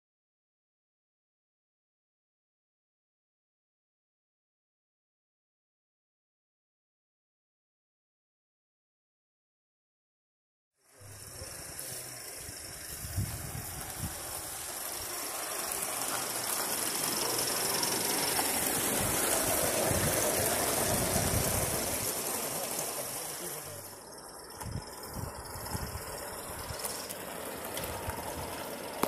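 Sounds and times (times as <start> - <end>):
model steam locomotive hissing: 10.9 - 29.0.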